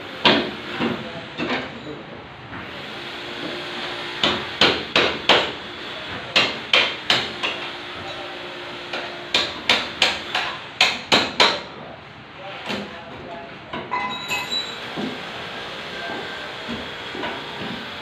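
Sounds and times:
hand tools striking steel frame: 8.9s - 11.7s.

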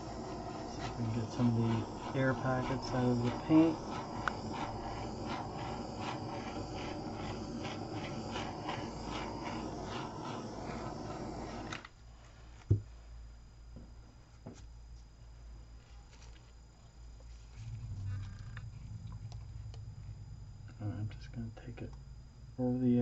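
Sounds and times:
torch flame burning: 0.0s - 12.0s, 17.3s - 23.0s.

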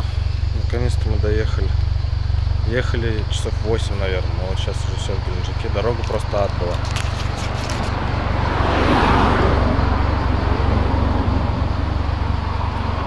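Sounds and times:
car passing: 0.0s - 13.0s
low traffic rumble: 0.0s - 13.0s.

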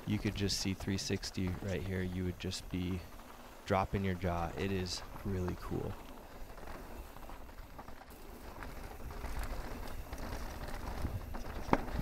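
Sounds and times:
bike clicks and rattles: 0.0s - 12.0s
wind rumble on microphone: 3.8s - 12.0s.

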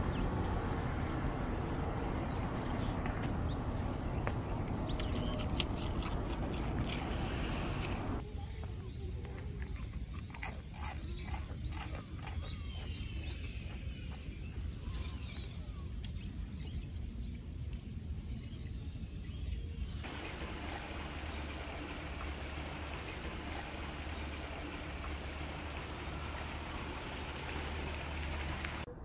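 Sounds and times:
birds chirping faintly: 0.0s - 28.9s
steady even hiss: 20.0s - 28.9s.

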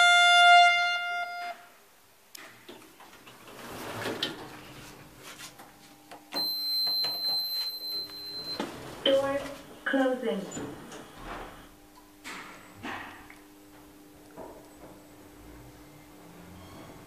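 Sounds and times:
lift doors sliding open: 2.5s - 5.1s, 15.4s - 17.0s.

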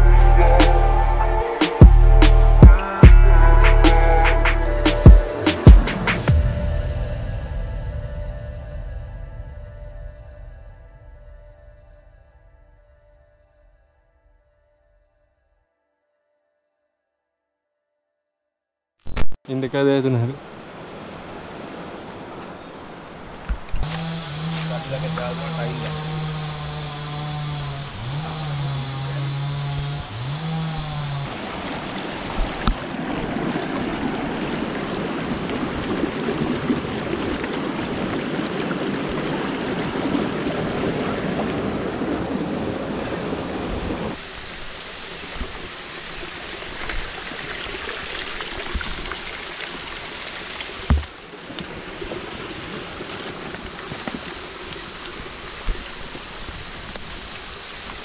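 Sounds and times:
river water rushing: 20.3s - 29.6s, 30.2s - 58.0s
sharp knocks: 50.9s - 51.2s.

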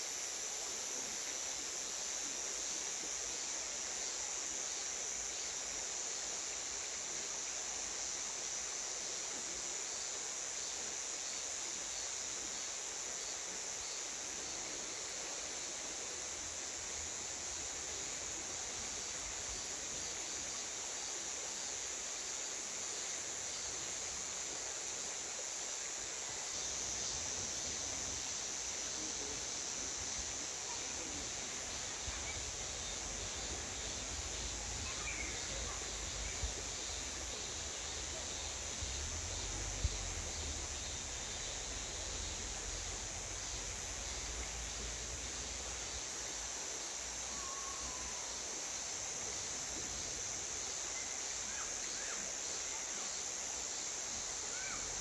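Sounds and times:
cicadas buzzing: 0.0s - 55.0s
stream rushing: 31.4s - 46.3s.

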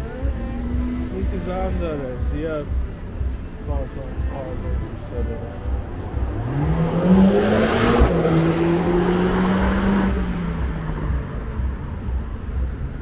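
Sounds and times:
vehicle engine accelerating: 4.4s - 13.0s.

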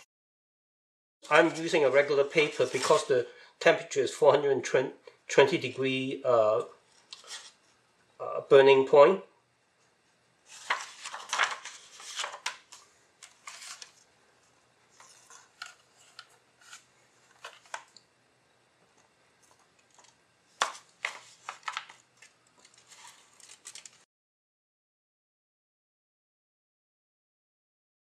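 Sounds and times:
paper rustling and sliding: 1.3s - 3.2s, 7.0s - 7.6s, 10.5s - 14.0s, 14.9s - 17.9s, 20.0s - 24.1s.

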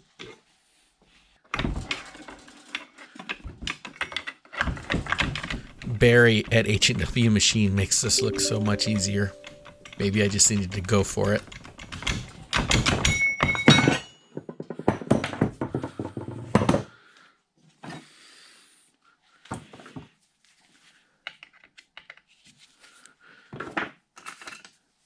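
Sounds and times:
clicks and knocks of parts: 1.8s - 5.9s.

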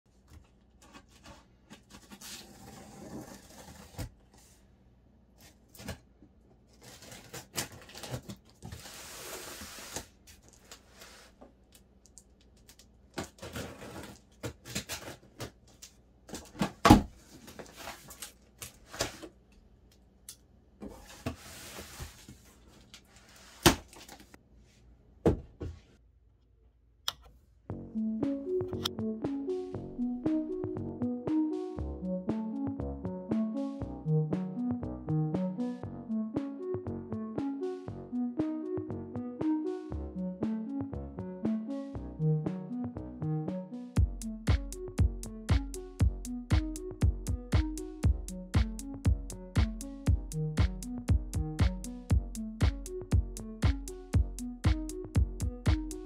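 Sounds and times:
cardboard scraping and rustling: 0.8s - 4.5s, 13.3s - 15.4s, 20.8s - 24.4s
music: 27.7s - 56.0s.

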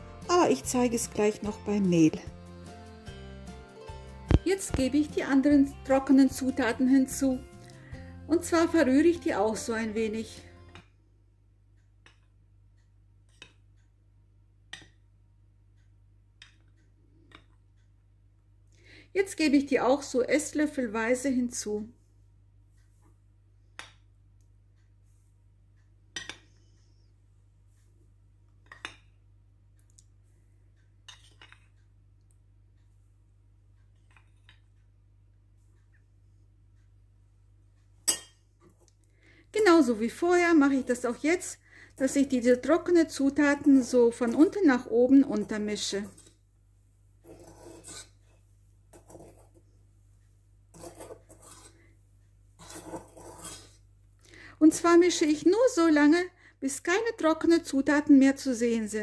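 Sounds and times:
utensil scraping batter in bowl: 40.6s - 46.4s, 47.2s - 49.7s, 50.7s - 52.0s, 52.6s - 53.8s.

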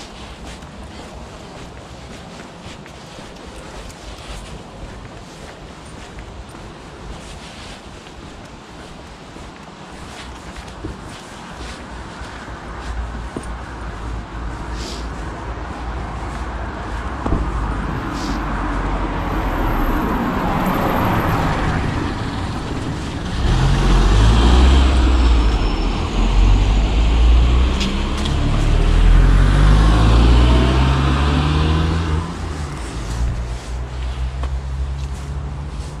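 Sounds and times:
passing car engines: 12.3s - 36.0s.

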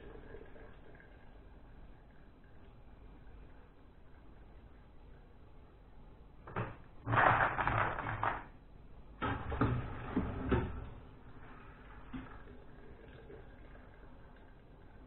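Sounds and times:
wet nuts clattering into bucket: 6.5s - 8.5s.

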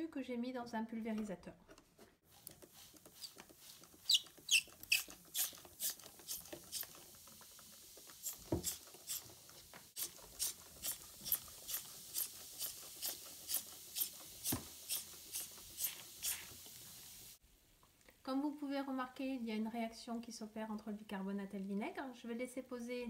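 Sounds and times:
spray bottle squirting: 2.3s - 7.4s, 8.0s - 17.2s.

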